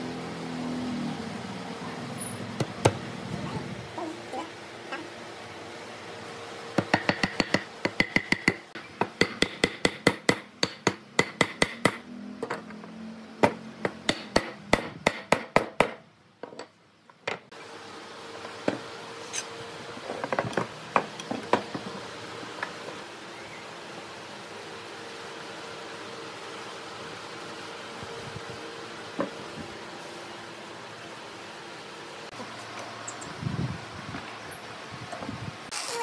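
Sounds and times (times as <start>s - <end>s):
hammer striking wood: 6.8s - 12.0s, 13.4s - 16.0s.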